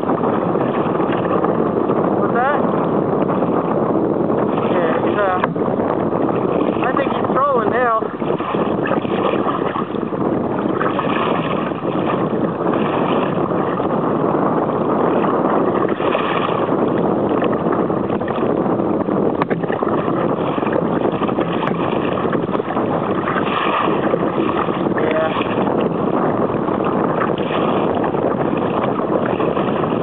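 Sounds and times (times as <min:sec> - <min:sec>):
water splashing against kayak hull: 0:00.0 - 0:30.0
wind buffeting microphone: 0:00.0 - 0:30.0.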